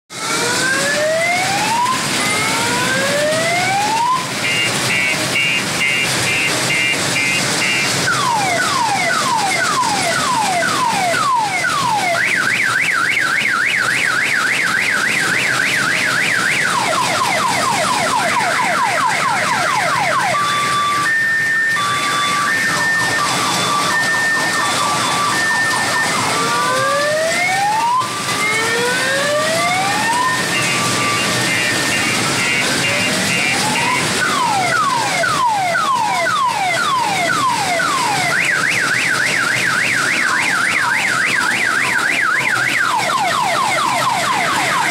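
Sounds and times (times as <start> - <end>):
multi-tone electronic siren: 0.1 - 44.9.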